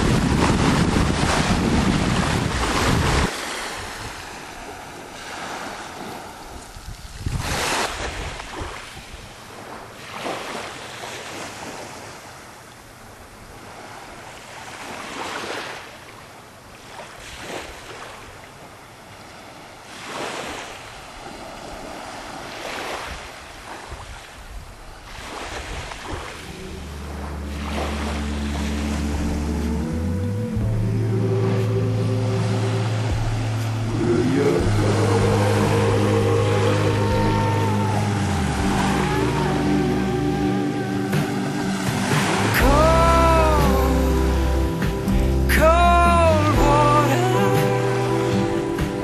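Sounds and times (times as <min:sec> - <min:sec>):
wind on microphone: 0:00.0 - 0:04.4, 0:06.0 - 0:09.7
small waves washing onto rocks: 0:00.0 - 0:12.3, 0:13.5 - 0:26.6
water rushing along hull: 0:00.0 - 0:49.0.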